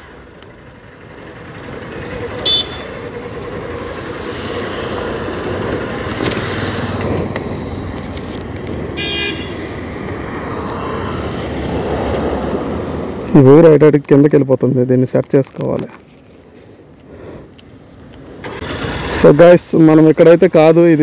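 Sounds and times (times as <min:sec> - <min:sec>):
road traffic rumbling: 0:00.0 - 0:21.0
vehicle horn tooting: 0:02.4 - 0:03.0, 0:09.0 - 0:09.5.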